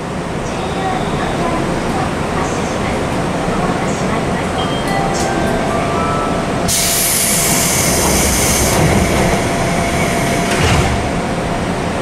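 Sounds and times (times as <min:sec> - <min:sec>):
train doors shutting knock: 0:06.7 - 0:11.2.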